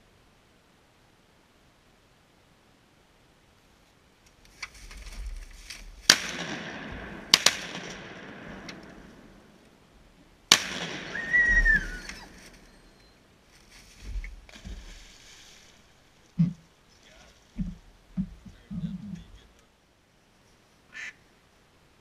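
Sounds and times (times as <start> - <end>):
shotgun shots with echo: 6.0 - 9.4, 10.5 - 12.1.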